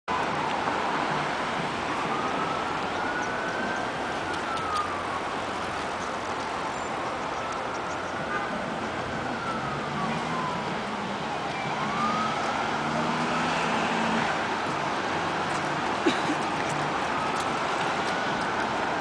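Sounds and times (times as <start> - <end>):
city street traffic: 0.0 - 19.0
distant siren wailing: 0.1 - 19.0.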